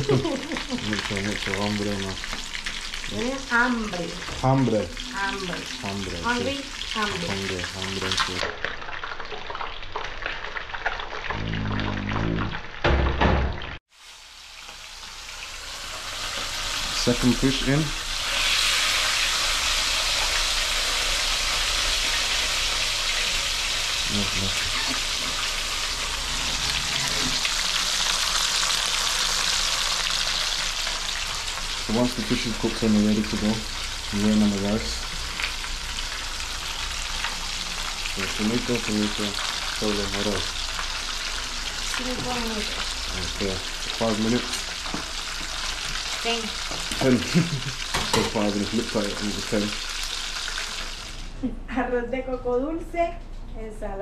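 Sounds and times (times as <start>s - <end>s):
person speaking: 0.0s - 2.2s, 3.1s - 8.4s, 11.3s - 12.6s, 24.1s - 25.4s
fish frying sizzle: 0.0s - 11.4s, 12.6s - 51.4s.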